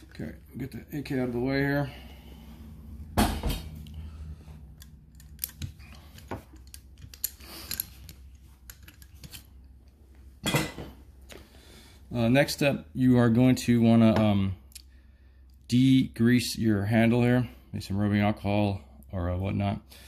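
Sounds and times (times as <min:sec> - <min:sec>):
metal rifle parts clinking: 0:04.8 - 0:09.6.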